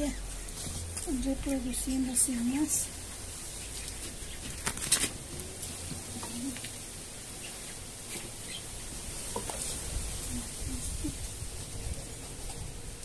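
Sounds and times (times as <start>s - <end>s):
hands rustling potting soil: 0.0s - 13.0s
crackly scrapes: 0.2s - 1.7s, 3.4s - 6.8s, 9.0s - 12.7s.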